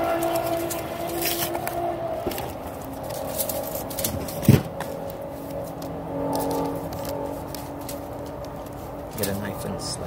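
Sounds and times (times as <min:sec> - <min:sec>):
aluminium foil crinkling: 0:00.0 - 0:09.8
dull thump: 0:04.4 - 0:04.8.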